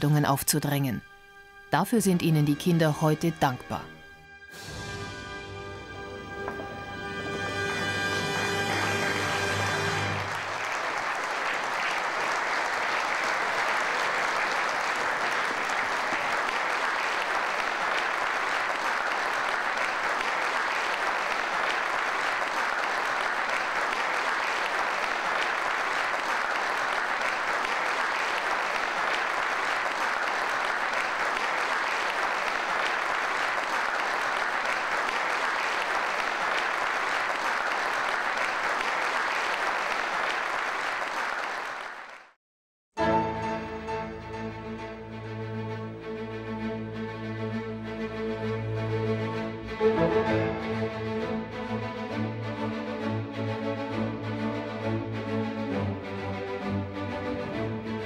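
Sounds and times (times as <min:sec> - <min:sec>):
audience applauding: 0:06.4 - 0:42.4.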